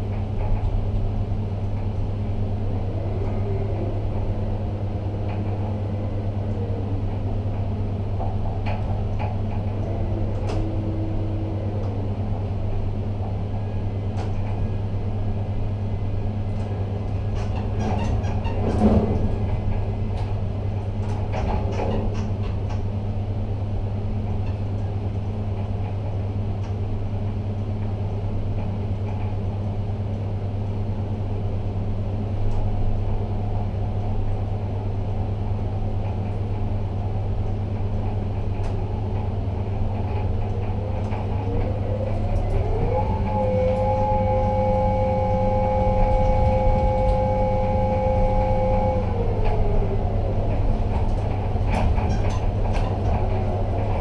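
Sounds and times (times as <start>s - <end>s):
low machinery hum: 0.0s - 54.0s
electric drives whining: 41.4s - 50.9s.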